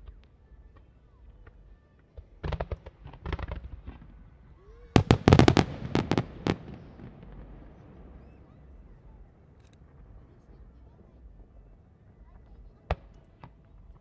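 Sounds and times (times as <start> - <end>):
fireworks cracking and popping: 0.0 - 8.5.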